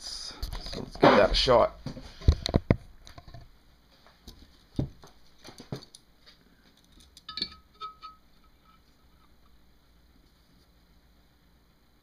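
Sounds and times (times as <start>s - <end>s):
faint metallic ring: 7.3s - 9.3s.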